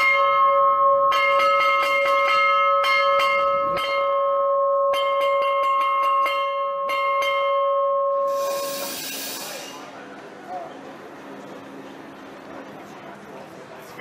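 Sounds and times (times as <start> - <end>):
hand-rung bell ringing: 0.0 - 9.8
rushing hiss: 8.3 - 9.9.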